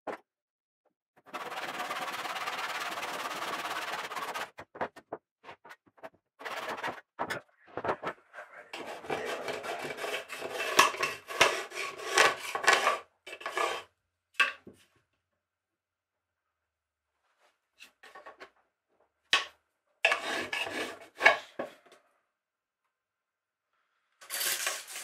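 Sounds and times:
hand saw cutting timber: 1.3s - 4.5s, 8.8s - 13.8s, 20.1s - 21.3s
rasping strokes on wood: 1.3s - 4.5s, 8.8s - 13.8s, 20.1s - 21.3s.

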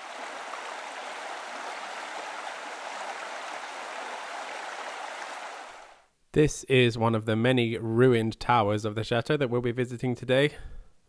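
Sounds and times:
water cascading over a weir: 0.0s - 6.0s.

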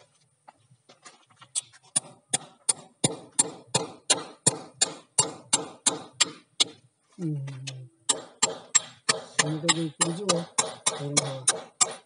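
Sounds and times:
sharp knocks: 2.0s - 6.8s, 7.6s - 12.0s.

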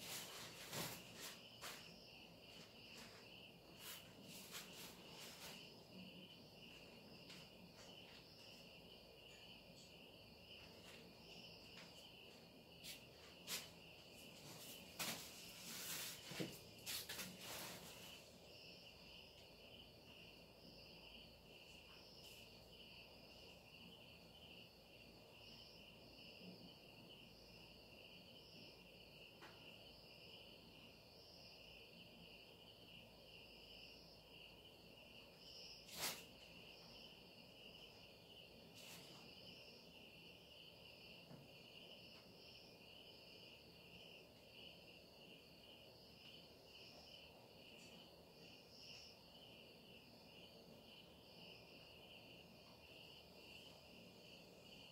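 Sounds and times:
crickets trilling: 0.0s - 54.9s.

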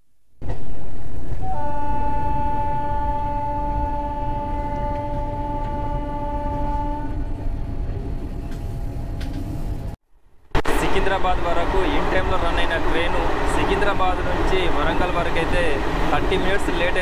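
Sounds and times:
moving train rumble: 0.4s - 17.0s
train horn blast: 1.4s - 7.4s.

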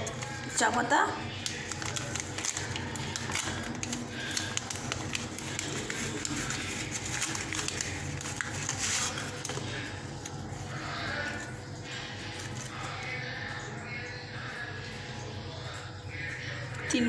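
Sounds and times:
paper envelope crinkling: 0.0s - 13.2s.

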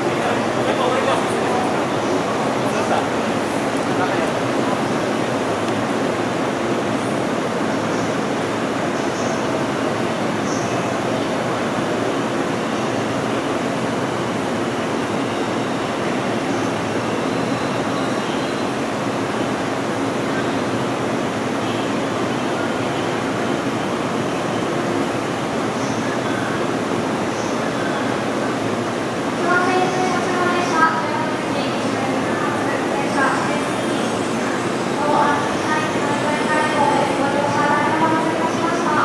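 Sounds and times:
electric train equipment humming: 28.0s - 39.0s.

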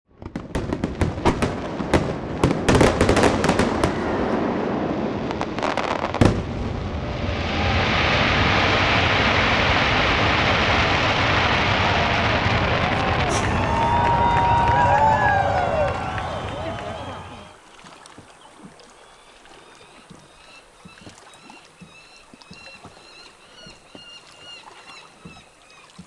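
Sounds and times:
fireworks bangs and pops: 0.1s - 17.3s.

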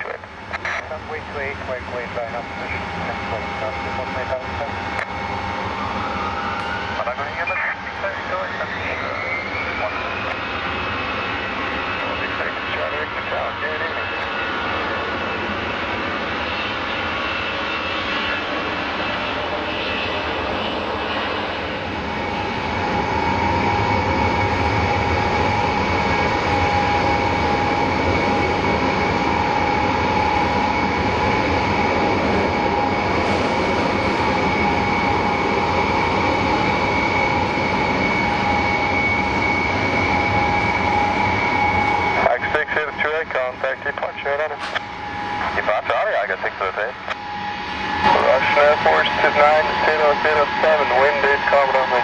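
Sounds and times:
jet engines rumbling and whining: 0.0s - 52.0s.

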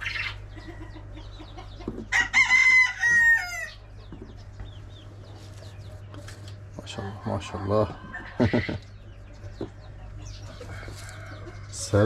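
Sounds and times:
chickens clucking faintly: 0.0s - 12.0s
rooster crowing: 2.1s - 3.8s.

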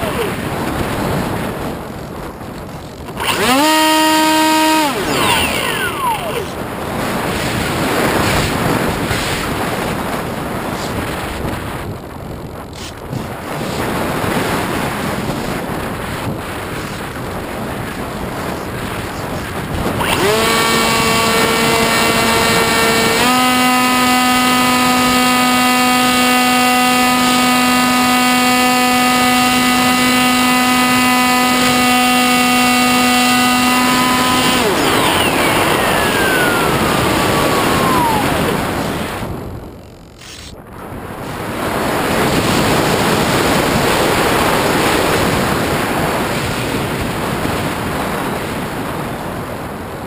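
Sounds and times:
electric motor and propeller whine: 0.0s - 50.0s
wind rushing: 32.0s - 49.7s.

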